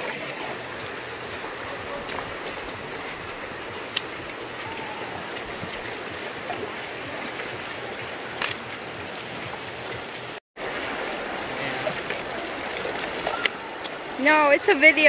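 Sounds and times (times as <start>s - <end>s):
river flowing over stones: 0.0s - 15.0s.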